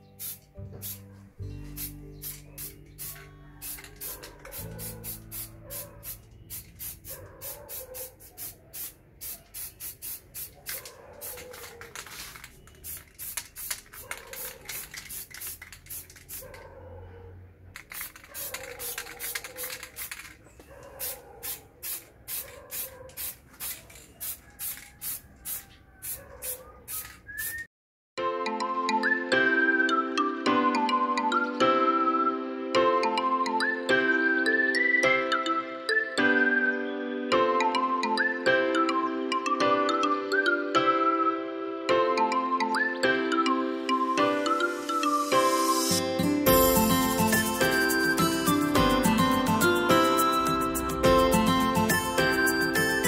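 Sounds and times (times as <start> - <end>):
spray paint can hissing bursts: 0.2 - 1.0, 1.8 - 16.6, 17.8 - 27.7.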